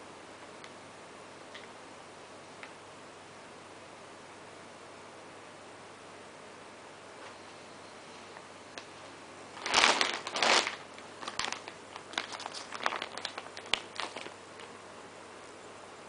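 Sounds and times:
plastic bag crinkling: 9.5s - 14.8s.

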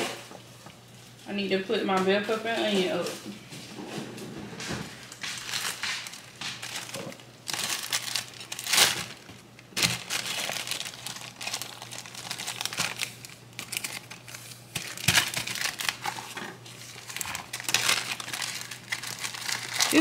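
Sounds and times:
plastic bag crinkling: 4.6s - 20.0s.

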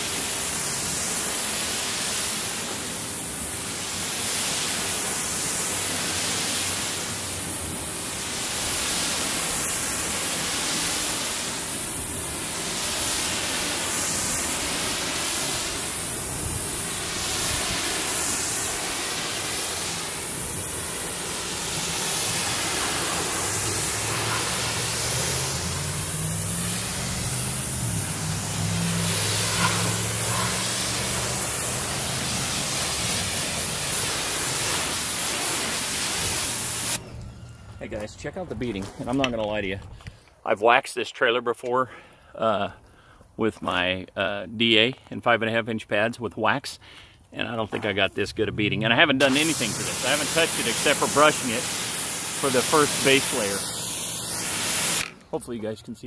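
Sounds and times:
pressure washer spray hissing: 0.0s - 37.3s, 48.9s - 55.6s.

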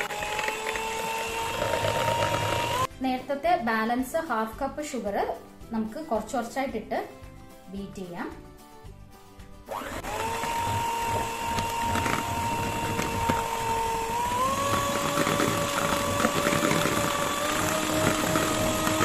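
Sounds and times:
electric hand mixer whirring: 0.0s - 2.9s, 9.7s - 19.0s.

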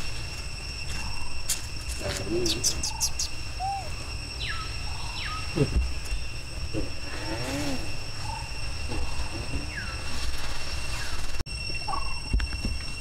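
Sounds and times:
high insect drone: 0.0s - 13.0s
short chirping calls: 2.4s - 6.3s.

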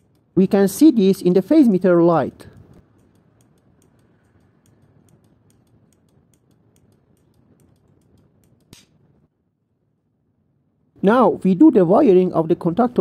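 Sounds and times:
timer relay clicking: 2.4s - 9.0s.

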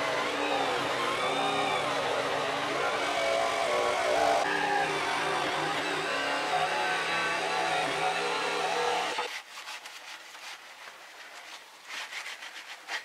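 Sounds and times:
jigsaw cutting plywood: 0.0s - 9.3s.

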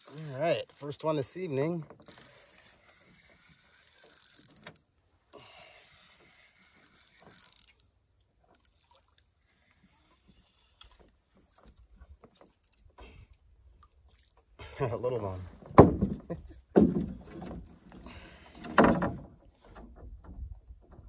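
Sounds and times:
fishing reel ticking: 0.0s - 11.7s.

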